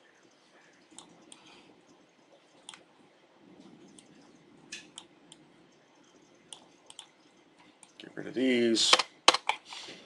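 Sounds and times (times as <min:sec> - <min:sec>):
mouse and keyboard clicks: 0:06.5 - 0:07.1.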